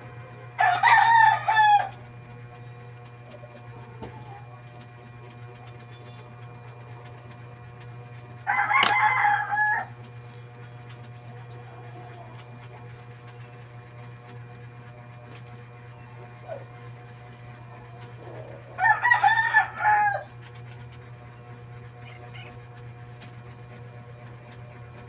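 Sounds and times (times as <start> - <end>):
steady low hum: 0.0 - 25.0
rooster crowing: 0.6 - 2.0, 8.4 - 10.1, 18.7 - 20.4.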